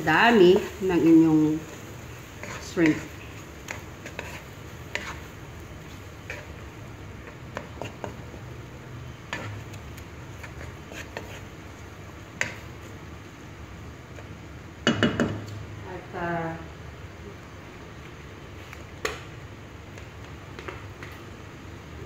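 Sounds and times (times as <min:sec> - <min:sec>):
spatula scraping pan: 0:00.0 - 0:08.3, 0:09.0 - 0:11.6
faint steady hiss: 0:00.0 - 0:22.0.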